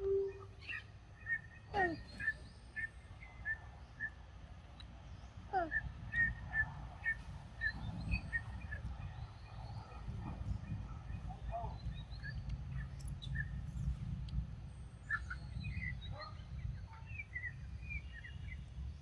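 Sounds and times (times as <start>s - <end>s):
bird calling repeated note: 0.0s - 0.8s.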